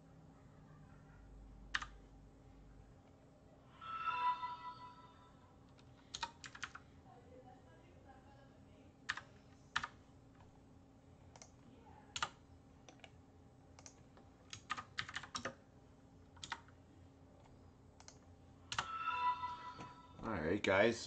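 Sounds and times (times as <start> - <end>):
faint steady hum: 0.0 - 21.0
computer keyboard keystrokes: 1.7 - 2.0, 5.8 - 6.8, 9.1 - 10.0, 11.3 - 13.2, 13.8 - 15.6, 16.3 - 16.7.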